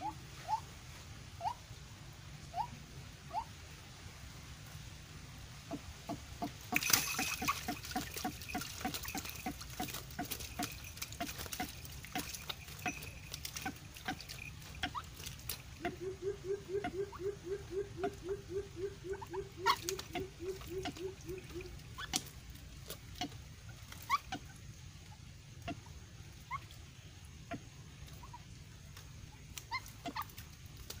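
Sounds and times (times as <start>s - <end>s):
bird low hooting notes: 5.7s - 22.3s.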